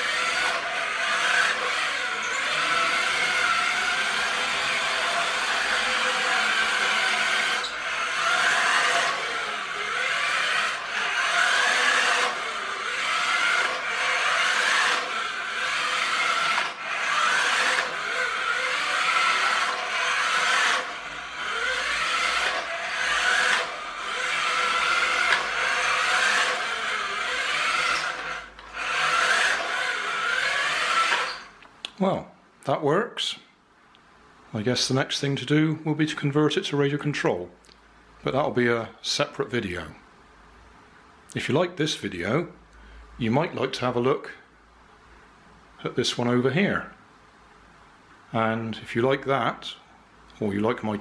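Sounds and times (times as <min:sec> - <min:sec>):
toy car motor whirring: 0:00.0 - 0:31.6.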